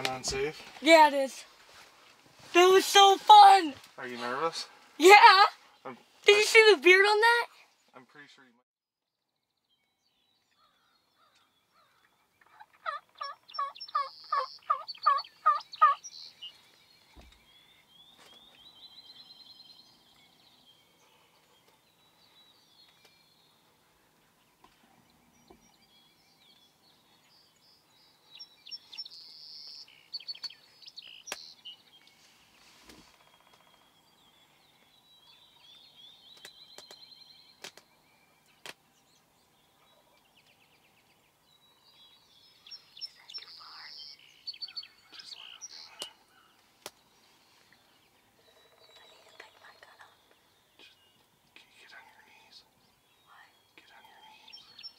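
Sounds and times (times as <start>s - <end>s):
wild turkey yelping: 10.6s - 16.0s
sharp clicks: 37.6s - 37.9s.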